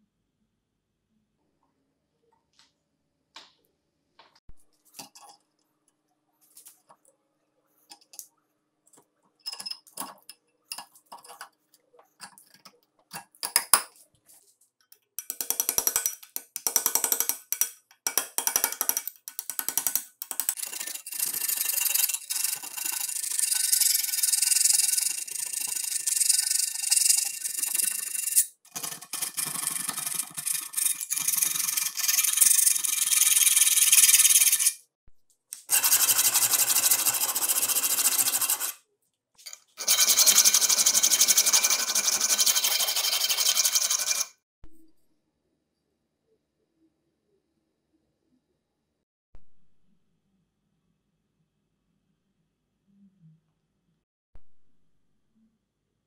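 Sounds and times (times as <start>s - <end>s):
hand file rasping on steel: 20.5s - 34.8s, 35.7s - 38.8s
scraper scratching rust off blade: 20.5s - 34.8s, 35.6s - 38.8s.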